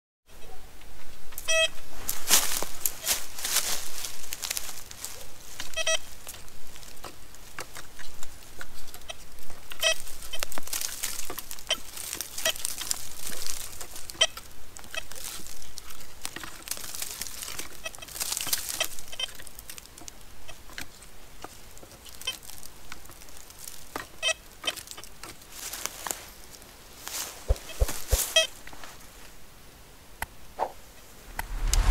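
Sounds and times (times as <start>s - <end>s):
rustling dry grass: 1.4s - 29.5s, 31.0s - 31.9s.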